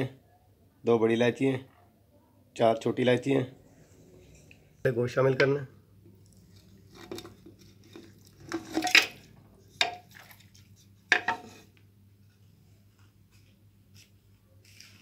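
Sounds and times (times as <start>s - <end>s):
wooden spoon knocking on pot: 11.1s - 11.5s.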